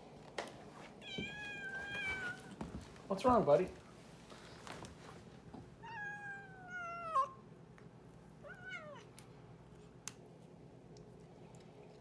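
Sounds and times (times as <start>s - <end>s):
cat meowing: 1.0s - 2.6s, 5.8s - 7.4s, 8.4s - 9.1s.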